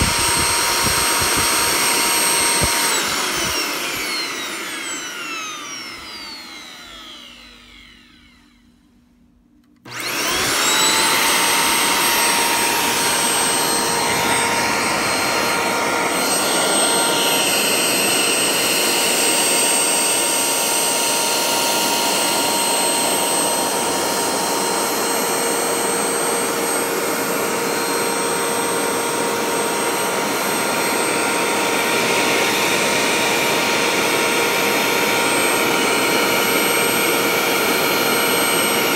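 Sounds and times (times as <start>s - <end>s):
vacuum cleaner motor whining: 0.0s - 38.9s.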